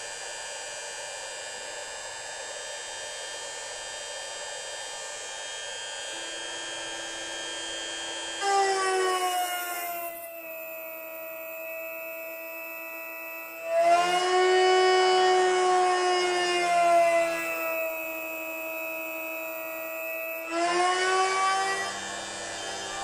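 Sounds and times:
router spindle whining: 6.0s - 23.0s
end mill cutting steel: 6.1s - 23.0s.

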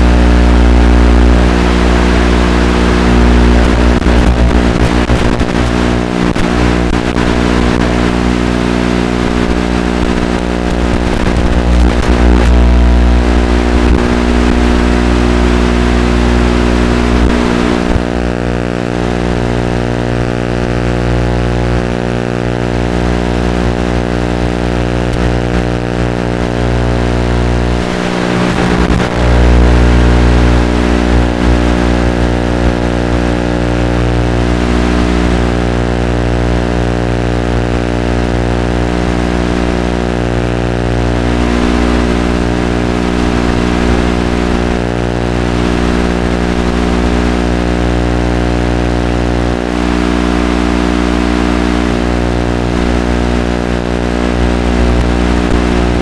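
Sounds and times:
steady electrical buzz: 0.0s - 56.0s
electric motor and geartrain whirring: 25.1s - 32.6s.

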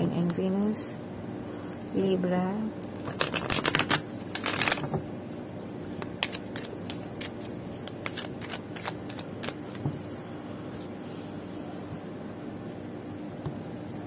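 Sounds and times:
cards being shuffled: 3.0s - 5.0s, 5.8s - 9.9s.

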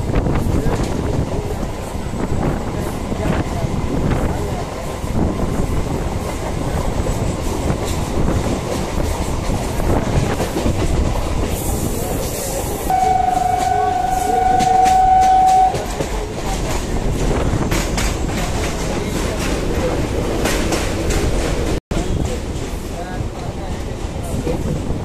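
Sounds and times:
train rumbling: 0.0s - 25.0s
train horn: 12.9s - 16.1s.

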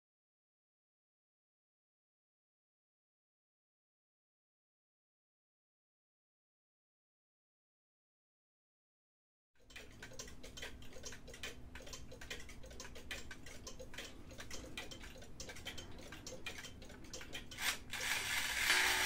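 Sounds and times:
clock ticking: 9.6s - 19.0s.

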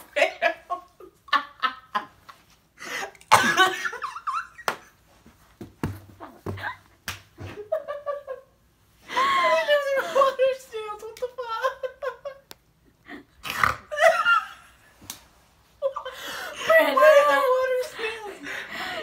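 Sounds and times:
coughing: 3.2s - 4.0s.

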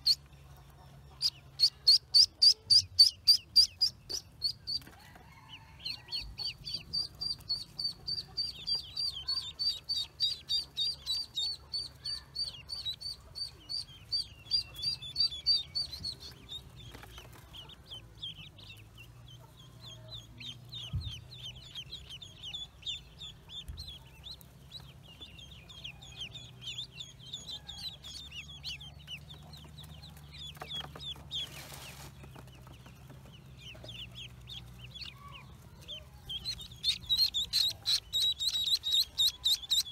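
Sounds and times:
chorus of duckling peeps: 0.0s - 39.9s
loud fast duckling peep: 1.1s - 4.8s, 6.4s - 16.9s, 33.6s - 39.9s.

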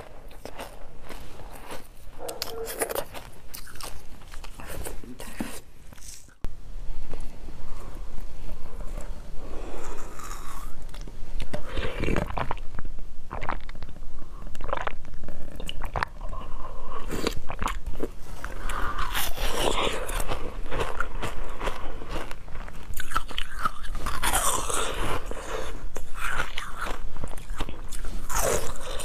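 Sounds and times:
crunching frozen food: 0.0s - 6.4s, 8.5s - 29.0s
chewing: 0.0s - 6.5s, 7.1s - 29.0s.

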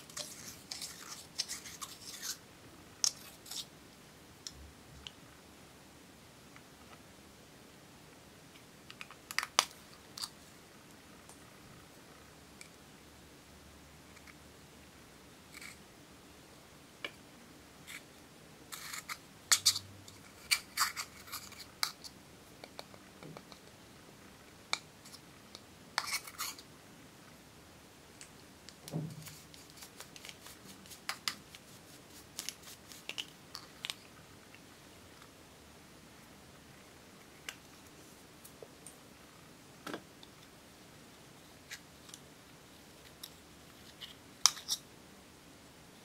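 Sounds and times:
metal spatula scraping powder: 0.0s - 2.4s, 18.7s - 19.8s.

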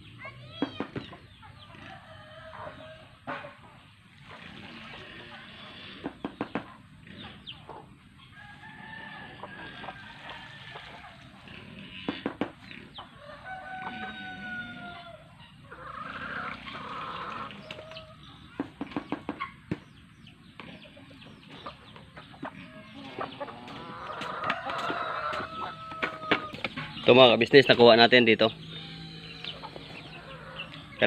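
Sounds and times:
chickens clucking: 0.0s - 31.0s
roosters crowing: 1.2s - 3.6s, 7.7s - 18.7s, 22.2s - 31.0s.

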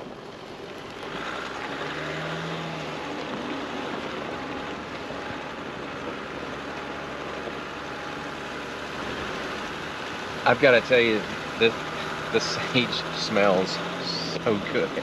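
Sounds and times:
car engine running: 0.0s - 15.0s
tyres on dirt and stone track: 0.0s - 15.0s.

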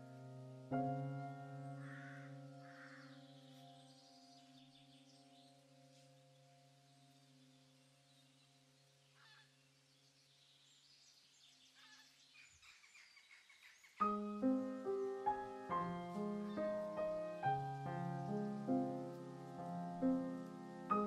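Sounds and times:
soft piano music: 0.0s - 10.2s, 13.9s - 21.0s
faint chirps: 1.8s - 21.0s.

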